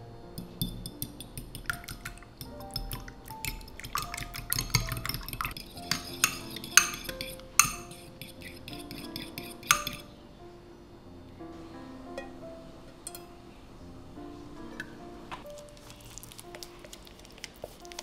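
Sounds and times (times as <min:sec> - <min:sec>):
fork beating eggs in glass bowl: 0:00.4 - 0:10.1.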